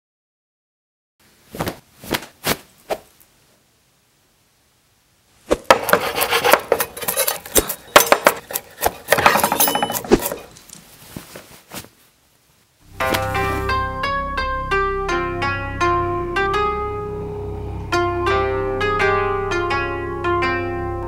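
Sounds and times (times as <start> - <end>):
utensils scraping: 5.6 - 10.9
pots and pans knocking: 5.7 - 10.4
metallic ring: 9.2 - 10.4.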